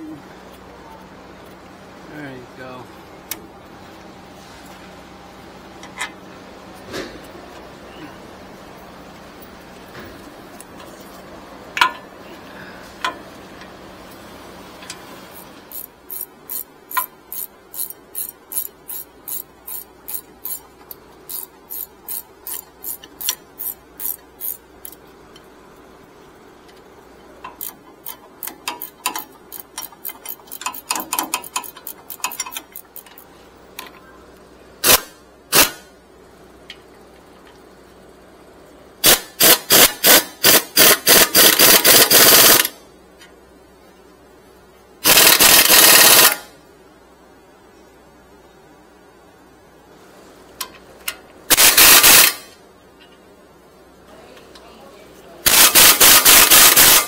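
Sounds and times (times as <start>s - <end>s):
ratchet wrench clicking: 14.8s - 25.0s, 27.4s - 33.2s, 39.0s - 42.8s, 45.0s - 46.5s, 50.6s - 52.5s, 55.5s - 57.0s.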